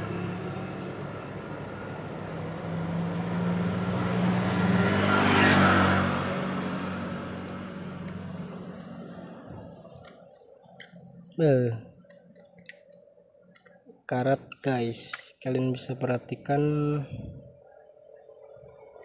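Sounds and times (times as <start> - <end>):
vehicle engine passing by: 0.0 - 10.0.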